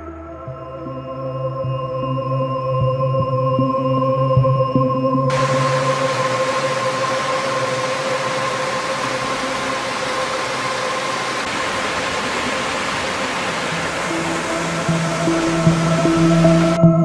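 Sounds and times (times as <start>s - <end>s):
stream rushing over boulders: 5.3s - 16.8s.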